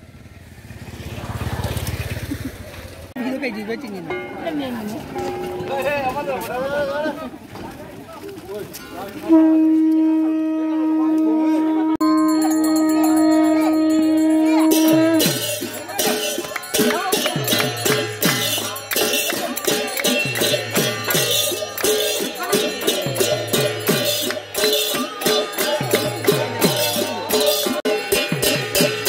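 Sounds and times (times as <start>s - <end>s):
hand drums: 4.0s - 6.2s, 12.0s - 29.0s
conch shell blown: 9.2s - 16.4s
small cymbals: 12.0s - 29.0s
hands clapping: 15.6s - 27.8s.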